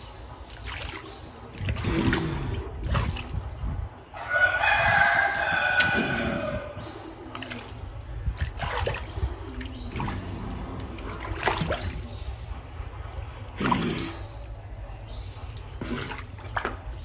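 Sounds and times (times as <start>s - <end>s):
hand splashing water in tank: 0.4s - 3.4s, 5.2s - 6.5s, 7.2s - 12.2s.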